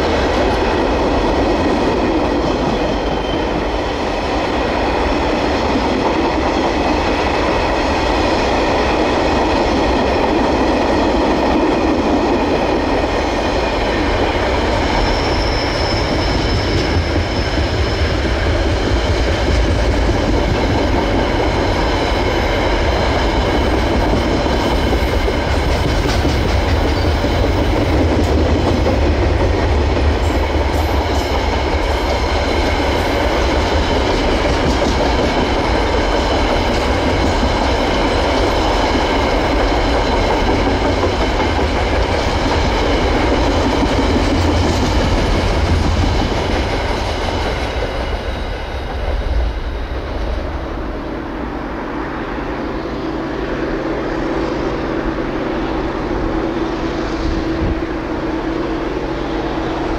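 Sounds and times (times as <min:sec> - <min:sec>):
freight train wheels rumbling: 0:00.0 - 0:59.9
faint high wheel squeal: 0:14.6 - 0:17.8.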